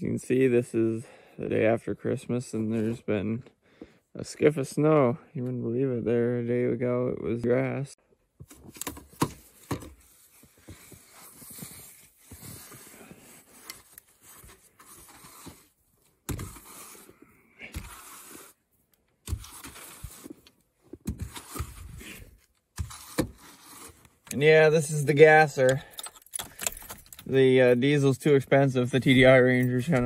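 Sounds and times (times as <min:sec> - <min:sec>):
brush sweeping snow off glass: 0:10.1 - 0:18.6, 0:19.2 - 0:20.5, 0:21.1 - 0:24.1.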